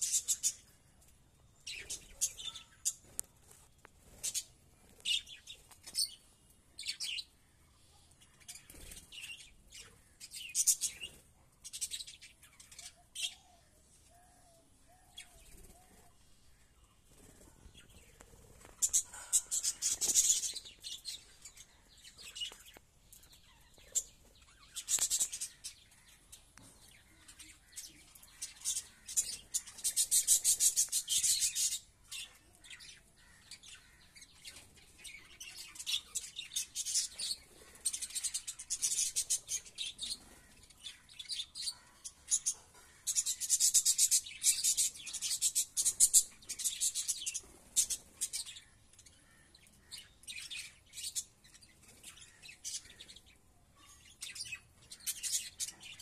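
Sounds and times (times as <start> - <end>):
budgerigars chirping and chattering: 0.0 - 0.7, 1.7 - 3.1, 17.2 - 56.0.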